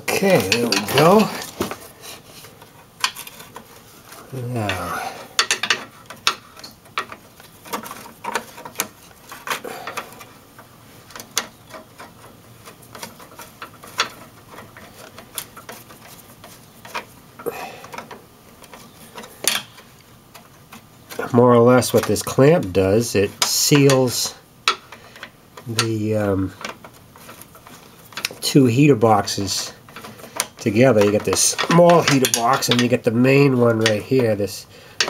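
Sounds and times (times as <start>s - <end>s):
hand tool clicking on metal: 0.1s - 1.6s, 21.1s - 34.3s.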